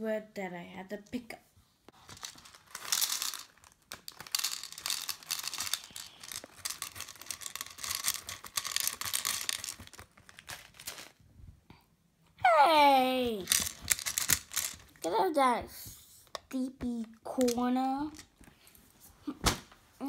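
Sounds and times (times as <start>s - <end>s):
plastic beads clicking and rattling: 2.0s - 11.2s, 13.4s - 15.1s, 17.3s - 18.5s.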